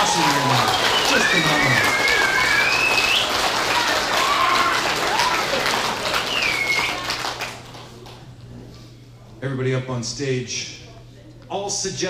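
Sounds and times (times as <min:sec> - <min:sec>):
audience cheering: 0:00.0 - 0:07.6
audience applauding: 0:00.0 - 0:08.2.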